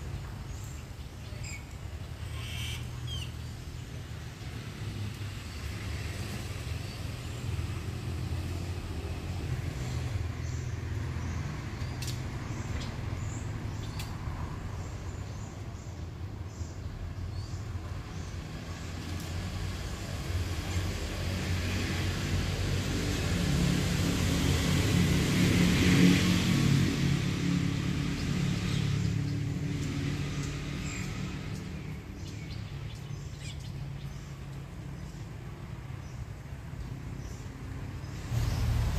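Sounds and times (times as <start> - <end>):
vehicle engine hum: 0.0 - 38.9
faint sharp high clicks: 12.0 - 12.9, 13.8 - 14.2.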